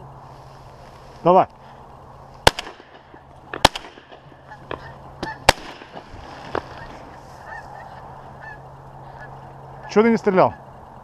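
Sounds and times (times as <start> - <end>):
shotgun shots: 2.4 - 6.1
geese honking: 4.2 - 10.8.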